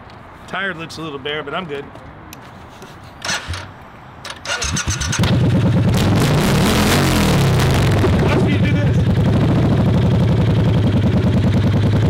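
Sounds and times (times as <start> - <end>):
motorcycle starter cranking: 3.2 - 5.5
motorcycle engine running: 4.6 - 6.2, 7.0 - 12.0.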